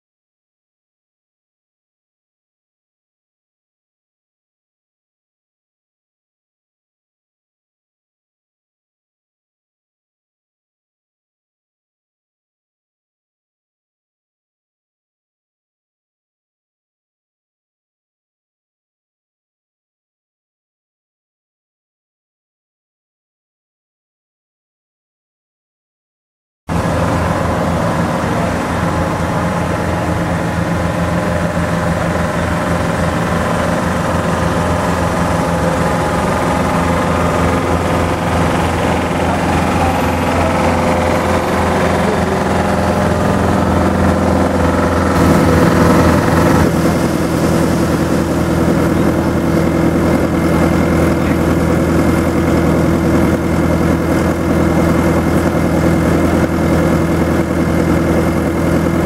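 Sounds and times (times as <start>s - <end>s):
heavy diesel engines running: 26.7s - 59.0s.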